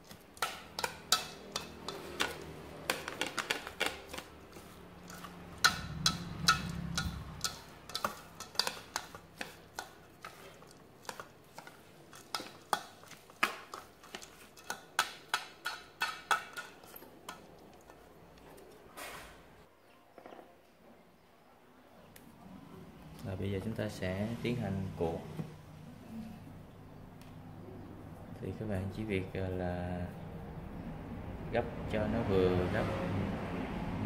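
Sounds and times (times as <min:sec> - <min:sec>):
chopsticks clicking on metal bowl: 0:00.1 - 0:18.0.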